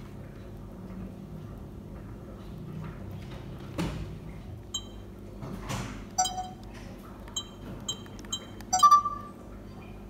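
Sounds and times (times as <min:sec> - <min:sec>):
short high electronic beeps: 0:06.2 - 0:06.6, 0:07.4 - 0:09.4.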